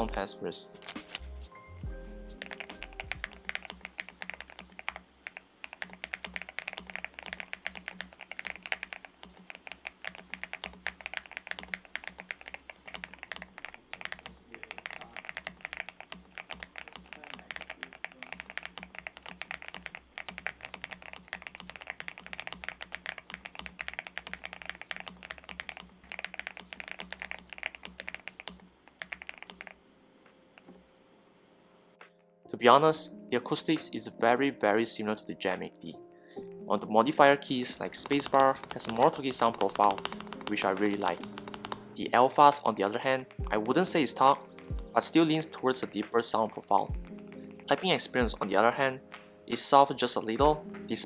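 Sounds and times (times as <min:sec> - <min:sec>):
soft background music: 0:00.0 - 0:04.9, 0:29.1 - 0:51.0
fast mechanical keyboard typing: 0:02.3 - 0:29.8, 0:37.6 - 0:42.0.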